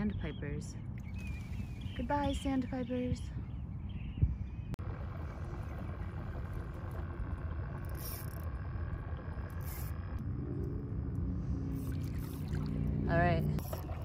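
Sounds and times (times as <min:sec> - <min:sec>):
pedal kayak rumble on water: 0:00.9 - 0:14.0
steady mechanical hum: 0:04.8 - 0:14.0.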